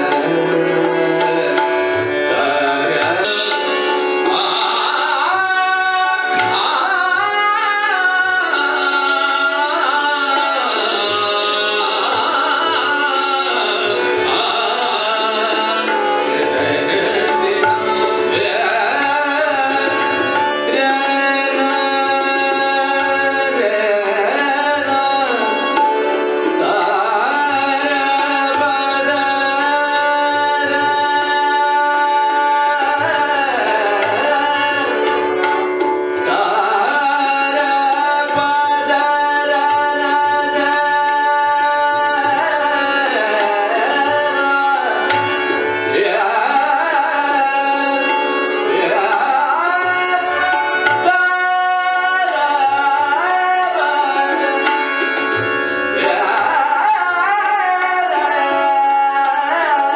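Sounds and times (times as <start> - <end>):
tabla strokes: 0.0 - 7.5
men singing: 0.0 - 25.8, 26.4 - 59.9
harmonium chords: 0.0 - 59.9.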